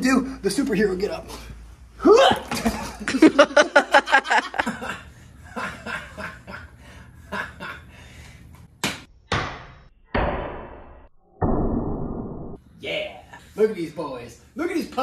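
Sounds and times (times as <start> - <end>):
people laughing: 2.4 - 7.9.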